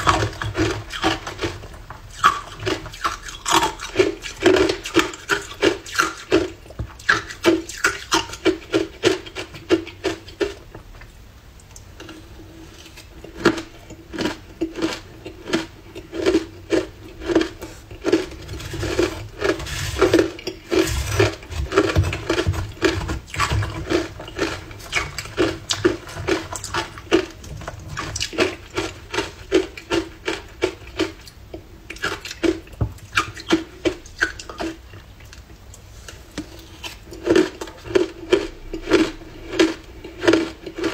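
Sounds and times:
metal spoon scraping ice: 17.3s - 27.2s.

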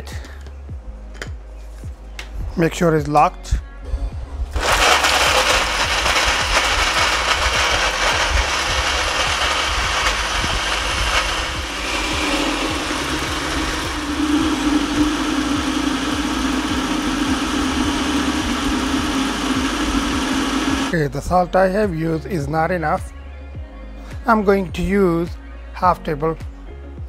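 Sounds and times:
blender chopping food: 4.6s - 21.0s
blender motor running: 4.6s - 21.0s.

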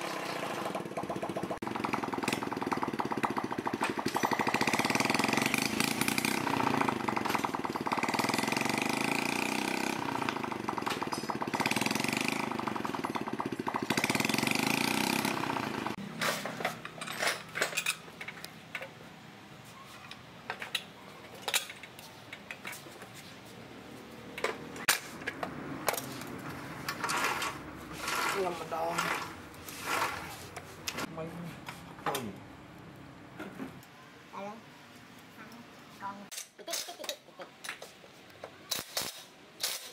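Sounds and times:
small motorcycle engine running: 0.0s - 16.0s.

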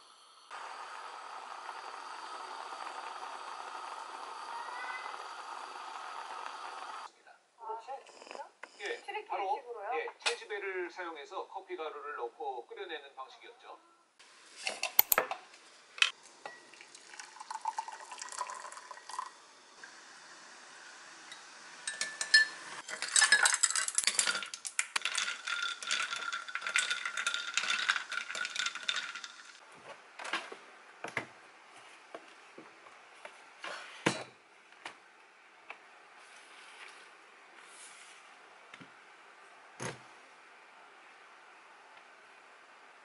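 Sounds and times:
ice cubes clinking in a glass: 16.6s - 19.3s, 21.8s - 29.6s.

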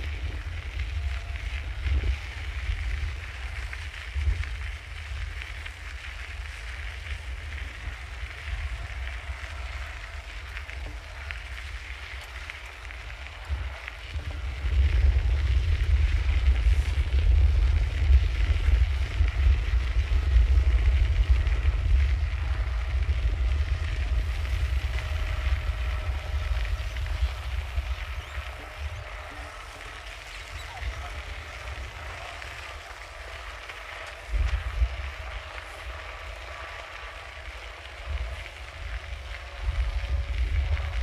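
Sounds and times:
wind buffeting microphone: 0.0s - 41.0s.

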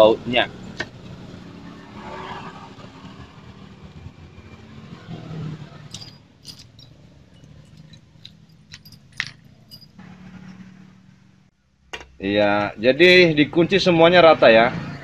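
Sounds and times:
bolts clinking on metal: 5.8s - 10.6s.

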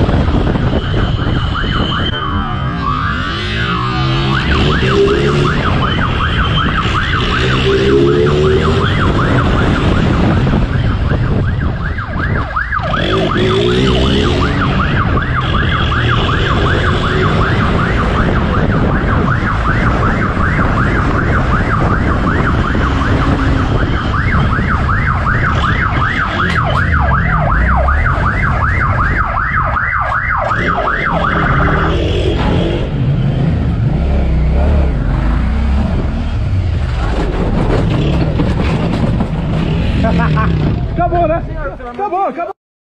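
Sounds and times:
police siren yelping: 0.0s - 32.4s
motorcycle engine revving: 12.8s - 29.0s, 30.6s - 41.0s.

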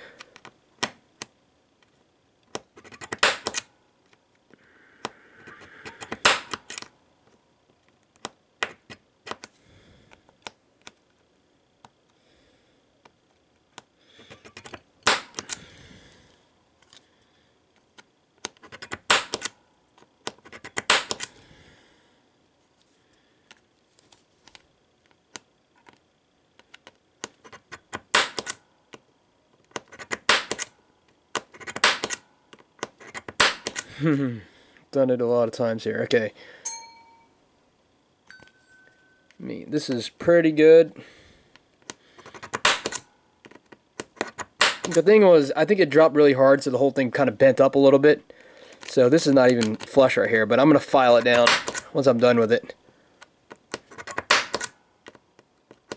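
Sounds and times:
center punch snapping on metal: 3.1s - 3.6s, 6.0s - 6.8s, 15.0s - 15.6s, 19.0s - 19.5s, 20.8s - 21.3s, 28.0s - 28.6s, 30.2s - 30.7s, 31.8s - 32.2s, 33.4s - 33.8s, 42.6s - 43.0s, 44.6s - 45.0s, 51.4s - 51.8s, 54.2s - 54.7s.

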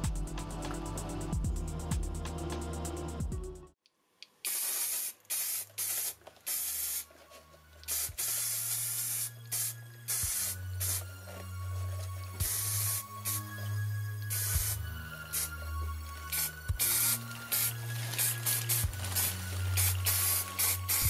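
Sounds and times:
spray paint can hissing: 4.4s - 7.1s, 7.8s - 11.2s, 12.3s - 21.0s.

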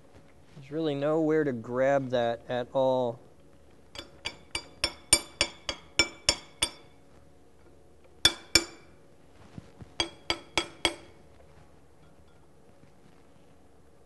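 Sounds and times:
steel bar tapping metal cap: 4.0s - 6.9s, 8.2s - 8.9s, 10.0s - 11.2s.

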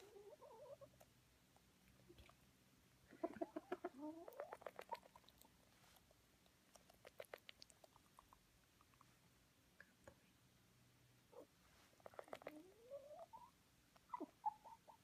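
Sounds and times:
rooster squeaky vocal sounds: 0.0s - 1.0s, 3.2s - 5.3s, 11.4s - 15.0s.

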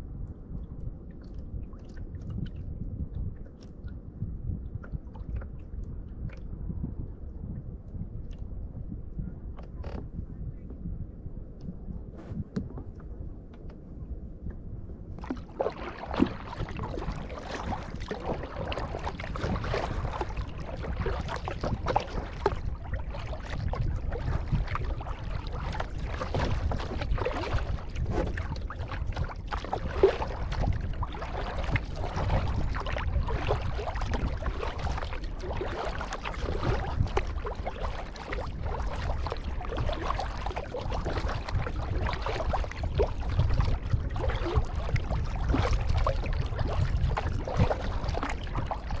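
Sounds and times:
low rumble: 0.0s - 49.0s
paddle splashing in water: 15.2s - 49.0s.

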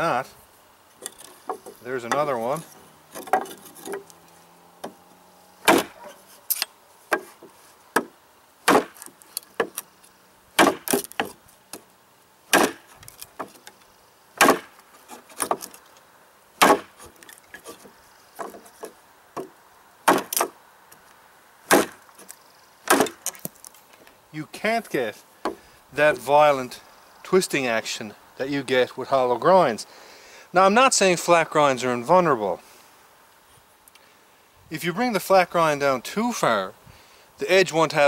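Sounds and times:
wood splintering: 1.0s - 9.9s, 10.5s - 11.9s, 12.5s - 13.8s, 14.4s - 15.9s, 16.6s - 20.6s, 21.7s - 23.8s
knife chopping wood: 5.6s - 9.8s, 10.6s - 11.4s, 12.5s - 13.6s, 14.4s - 15.8s, 16.6s - 20.6s, 21.7s - 22.0s, 22.9s - 23.6s.

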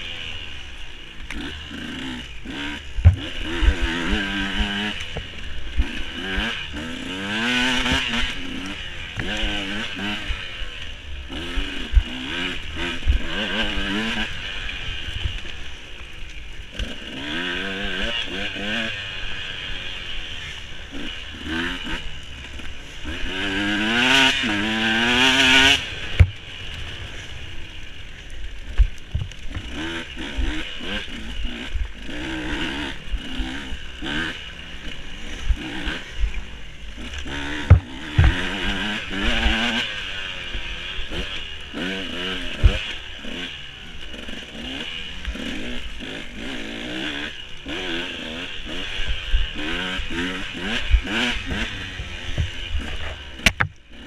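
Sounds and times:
dirt bike engine revving: 0.0s - 54.0s
bike knocking and clattering: 37.5s - 38.4s.

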